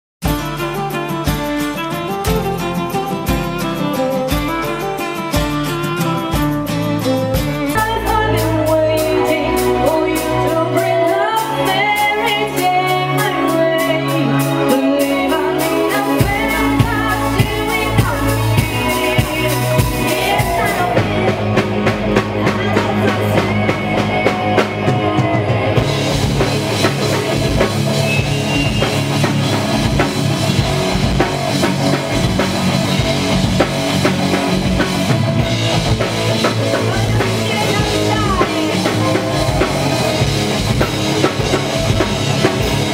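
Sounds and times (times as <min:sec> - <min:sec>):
metal band playing live: 0:00.2 - 0:42.9
woman singing: 0:07.6 - 0:26.4, 0:36.6 - 0:39.7.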